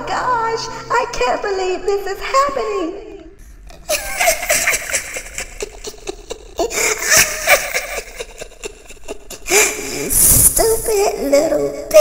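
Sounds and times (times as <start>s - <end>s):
person laughing breathily: 3.9s - 10.5s.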